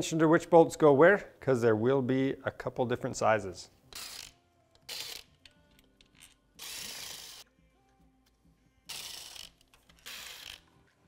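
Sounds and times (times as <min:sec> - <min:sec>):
faint background music: 0:00.0 - 0:11.0.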